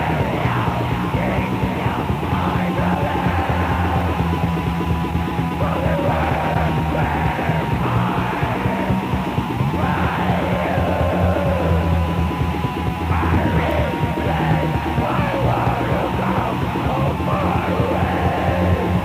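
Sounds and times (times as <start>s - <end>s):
distorted metal band playing: 0.0s - 19.0s
shrieked vocals: 5.6s - 12.0s, 13.1s - 19.0s.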